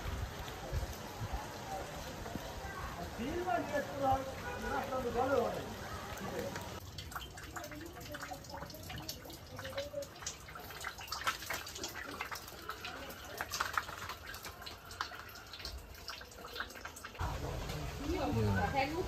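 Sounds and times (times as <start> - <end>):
water dripping and pattering: 0.0 - 19.0.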